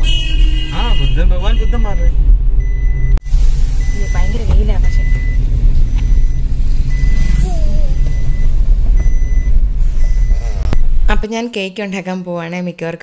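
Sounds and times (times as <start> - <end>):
car rumbling in motion: 0.0 - 11.3.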